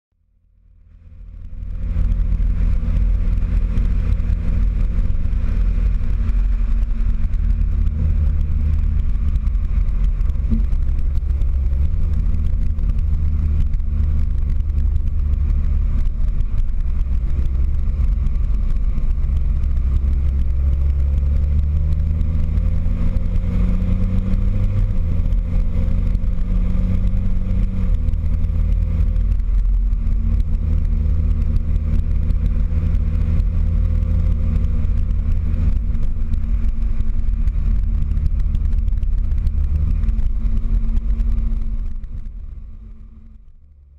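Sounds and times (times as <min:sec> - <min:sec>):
tractor diesel engine rumbling: 0:00.8 - 0:22.9.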